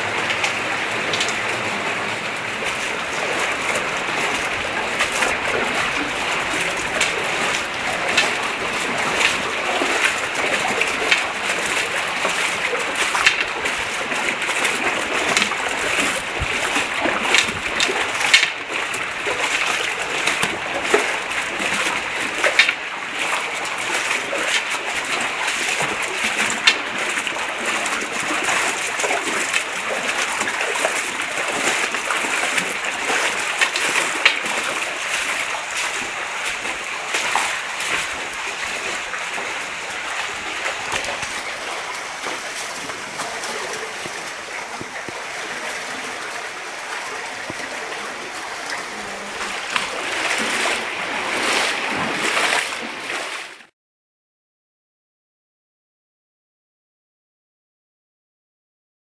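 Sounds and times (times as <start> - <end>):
feet wading splashes: 0.0 - 53.7
river water rushing over stones: 0.0 - 53.7.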